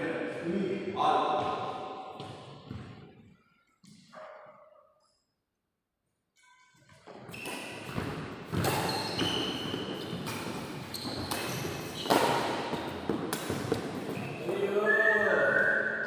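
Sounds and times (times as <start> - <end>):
racket hitting shuttlecock: 7.3 - 14.2.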